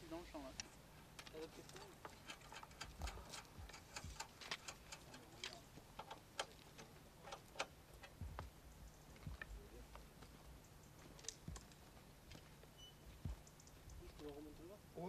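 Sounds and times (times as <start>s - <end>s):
faint irregular clicks and taps: 0.5s - 14.5s
low thumps: 7.7s - 14.3s.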